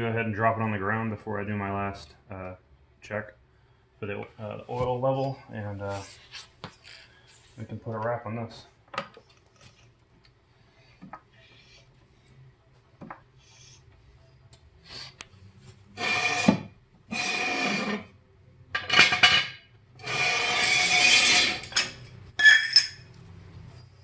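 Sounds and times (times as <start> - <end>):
jack stand scraping on concrete: 16.0 - 18.1, 18.8 - 23.0.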